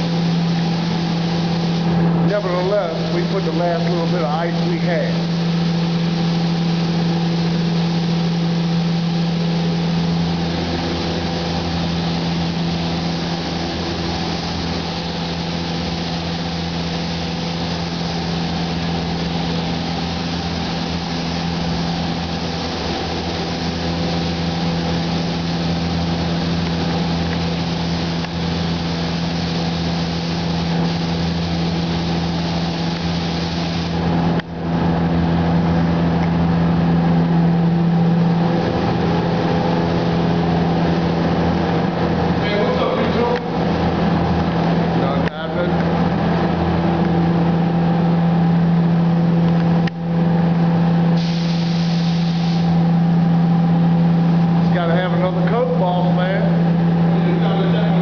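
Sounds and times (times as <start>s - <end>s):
paint spray gun hissing: 0.0s - 44.8s, 51.0s - 53.2s
machine hum: 0.0s - 58.0s.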